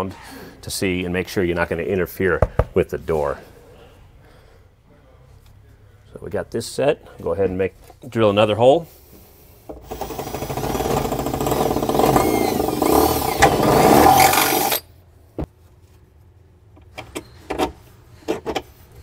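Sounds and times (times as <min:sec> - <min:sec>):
drill boring into steel: 0:09.8 - 0:14.8.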